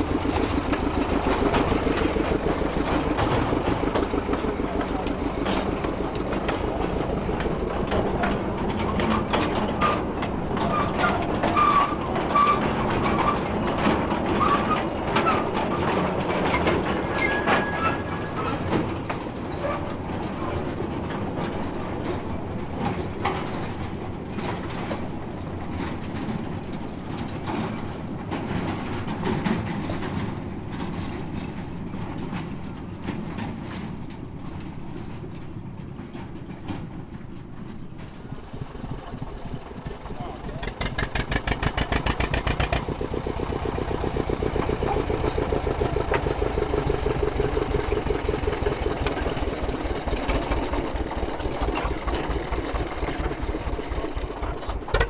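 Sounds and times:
train running on track: 0.0s - 55.0s
wheels clicking and clanking on rails: 0.0s - 55.0s
high wheel squeals: 8.8s - 13.6s, 14.3s - 15.9s, 16.5s - 18.8s.

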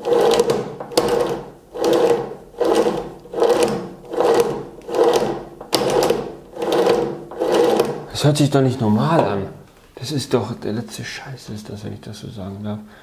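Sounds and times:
gear drive whirring and rattling: 0.0s - 8.2s.

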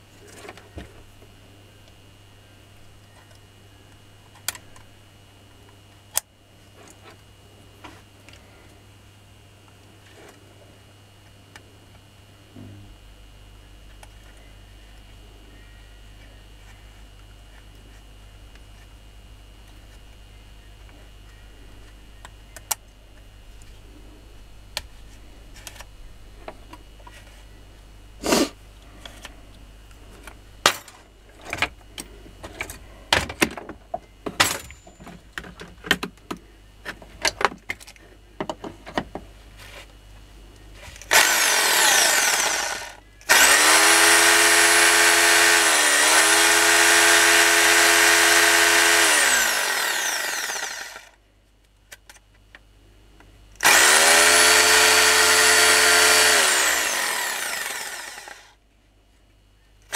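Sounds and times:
electric motor whining: 41.1s - 51.2s, 53.6s - 58.5s.

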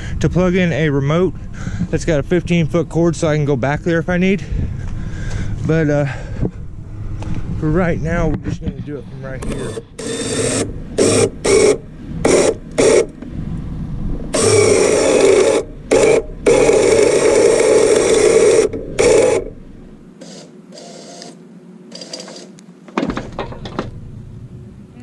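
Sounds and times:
electric winch reeling in cable: 9.1s - 13.2s, 14.3s - 19.6s, 20.2s - 22.6s.

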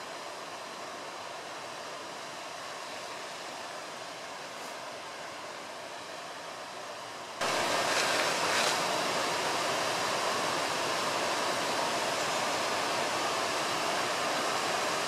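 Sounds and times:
fountain water splashing: 7.4s - 15.0s.

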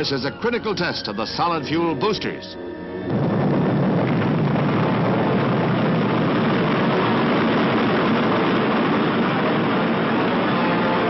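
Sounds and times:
rocket exhaust rumble: 2.8s - 11.0s.

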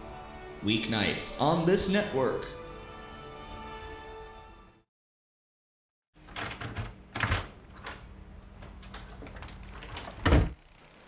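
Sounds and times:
door opening: 6.2s - 10.7s
door shutting with a thump: 10.1s - 10.6s.

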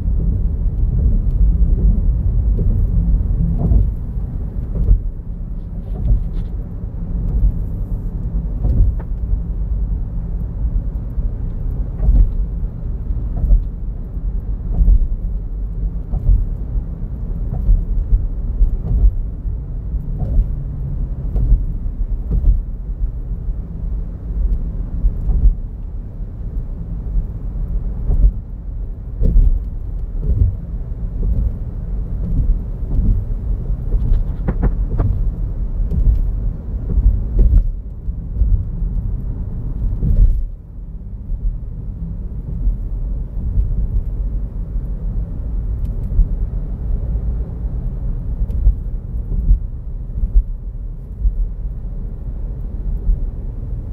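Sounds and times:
road and tyre rumble in car: 0.0s - 53.9s.

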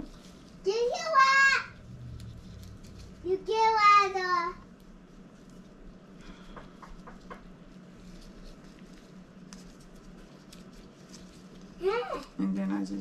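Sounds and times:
plastic wrapping rustling: 0.0s - 5.9s, 7.2s - 12.4s
low steady hum: 0.0s - 13.0s.

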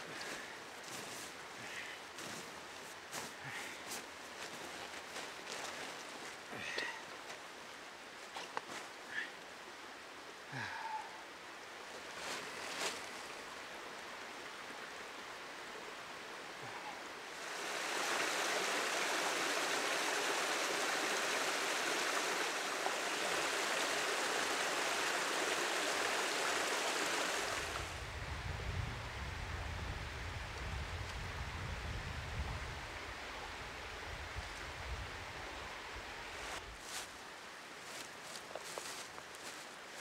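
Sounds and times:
waterfall rushing into a pool: 17.3s - 27.9s.

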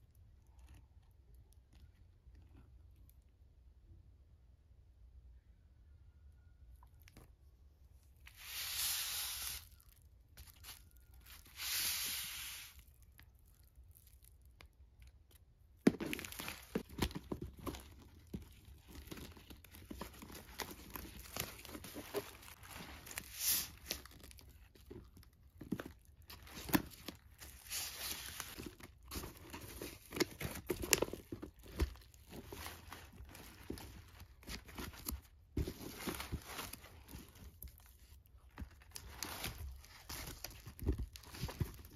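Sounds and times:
paper rustling and crinkling: 15.9s - 41.9s.

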